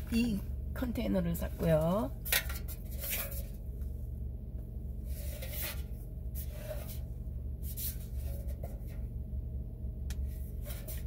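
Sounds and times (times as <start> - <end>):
low hum: 0.0 - 11.0
tin containers scraping: 2.2 - 3.6, 5.1 - 7.1.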